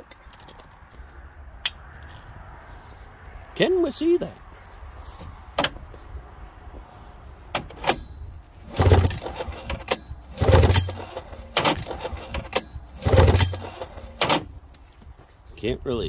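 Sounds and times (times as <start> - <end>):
recoil starter pulled: 7.6 - 14.6.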